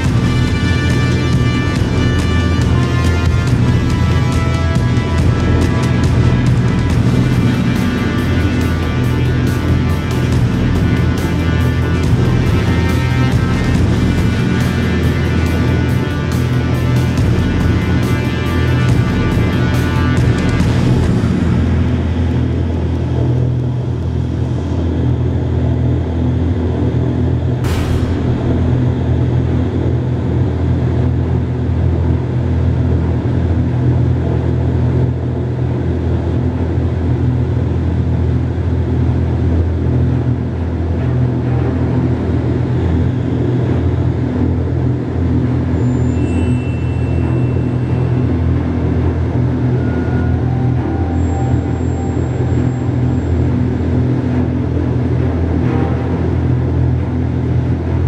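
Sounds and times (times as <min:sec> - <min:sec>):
low steady fan hum: 0:00.0 - 0:58.0
wind tunnel air rushing: 0:20.7 - 0:46.4.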